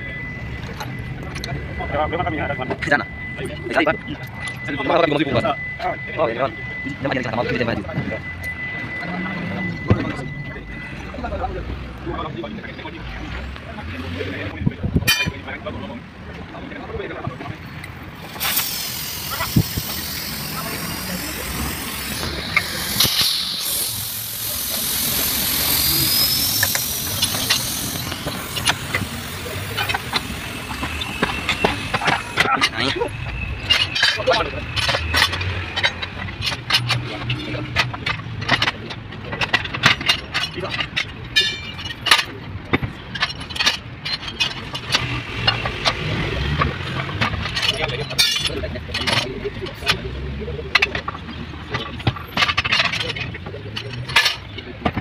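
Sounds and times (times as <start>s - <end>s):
vehicle engine running: 17.9s - 40.0s
steady hiss: 18.2s - 32.5s
wheel knocks and clanks: 18.2s - 55.0s.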